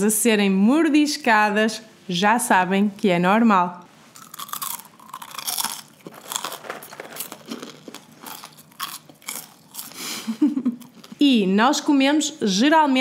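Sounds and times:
popcorn crunching while chewed: 0:04.1 - 0:11.2.

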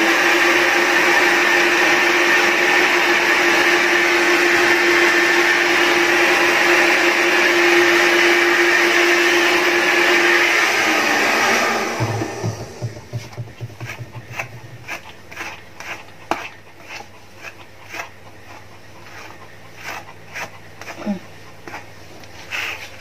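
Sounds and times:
hair dryer blowing: 0:00.0 - 0:14.8.

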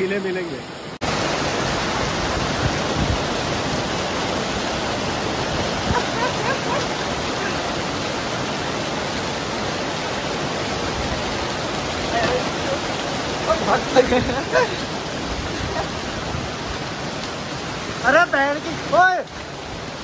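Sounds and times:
heavy rain pouring: 0:00.0 - 0:20.0.

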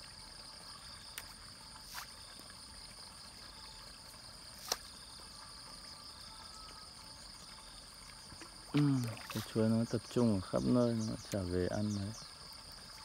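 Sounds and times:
high-pitched insect drone: 0:00.0 - 0:13.0
fish splashing at water surface: 0:08.3 - 0:09.8.

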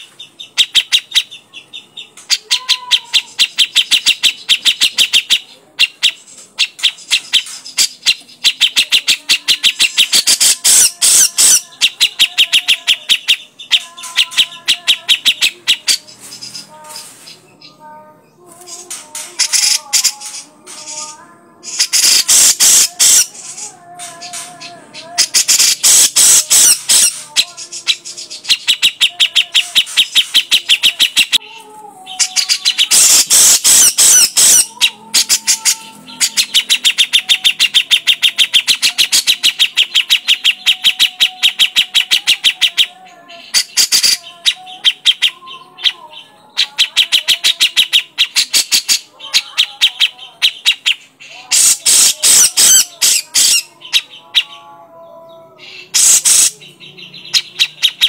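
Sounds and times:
bird chattering calls: 0:00.0 - 0:17.7, 0:18.7 - 0:31.4, 0:32.1 - 0:54.6, 0:55.7 - 0:58.0
harsh raspy bird calls: 0:19.4 - 0:21.1, 0:21.7 - 0:23.6, 0:24.2 - 0:31.4, 0:32.2 - 0:54.7, 0:55.6 - 0:58.0.

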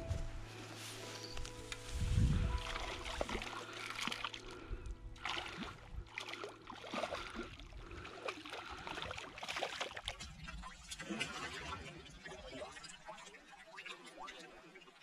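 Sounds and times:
background music: 0:00.0 - 0:08.9
fish splashing in water: 0:02.6 - 0:11.8.

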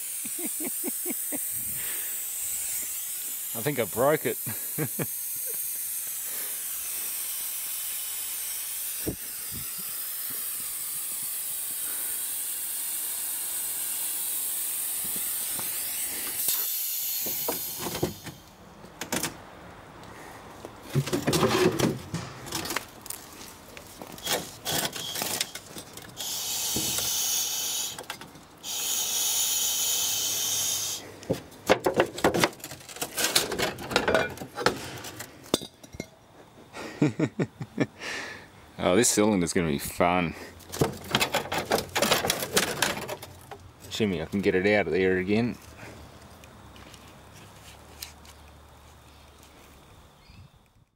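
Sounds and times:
compressed air hissing: 0:00.0 - 0:18.6, 0:24.2 - 0:31.4
knocks and rattles: 0:20.9 - 0:22.9, 0:31.3 - 0:36.1, 0:40.7 - 0:43.6.

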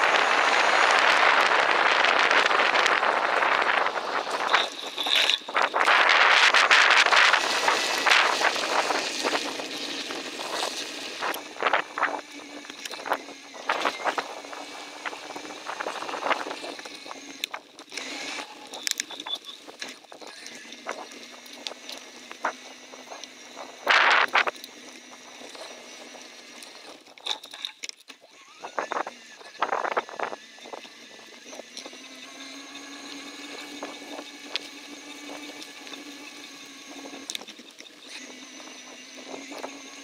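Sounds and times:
wind on microphone: 0:00.0 - 0:17.3
bicycle tyre noise: 0:00.0 - 0:27.9
bike clicks and rattles: 0:00.0 - 0:40.0.

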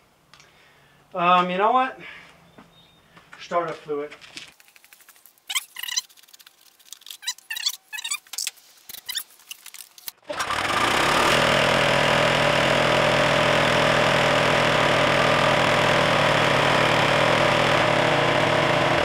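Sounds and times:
lawn mower engine running: 0:10.2 - 0:19.0.

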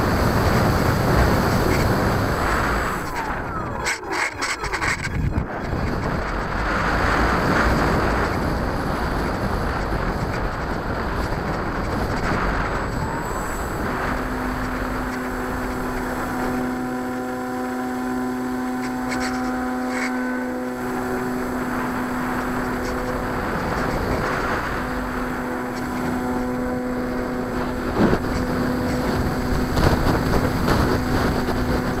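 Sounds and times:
propeller noise: 0:00.0 - 0:32.0
rushing wind: 0:00.0 - 0:32.0
steady motor hum: 0:00.0 - 0:32.0.

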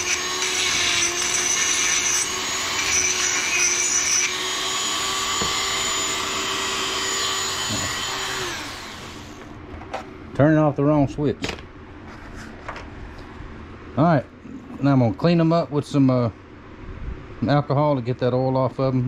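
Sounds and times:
rotary tool grinding metal: 0:00.0 - 0:09.4
motor spinning down: 0:01.9 - 0:09.5.

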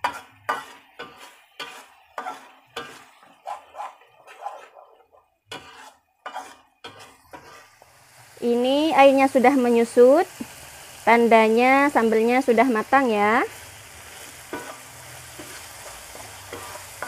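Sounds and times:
spatula scraping metal wok: 0:00.0 - 0:04.9, 0:05.5 - 0:07.9, 0:13.0 - 0:17.0.

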